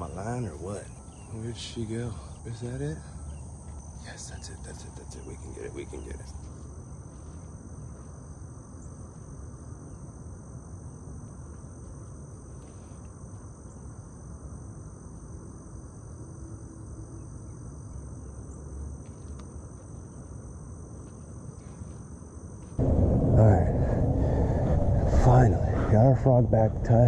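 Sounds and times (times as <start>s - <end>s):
high-pitched insect chorus: 0.0s - 27.0s
low rumble: 22.8s - 27.0s.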